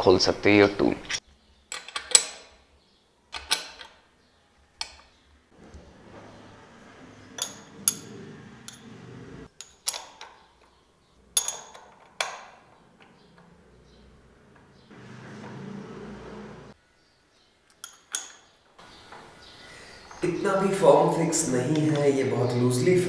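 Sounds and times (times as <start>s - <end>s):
spanner clinking on bolts: 1.7s - 2.6s, 3.3s - 4.0s, 7.3s - 14.9s, 17.7s - 19.2s.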